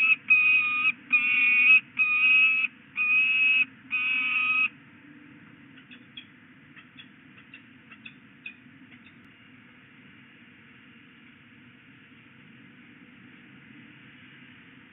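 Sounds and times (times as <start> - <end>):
falcon harsh calls: 0.0 - 4.7.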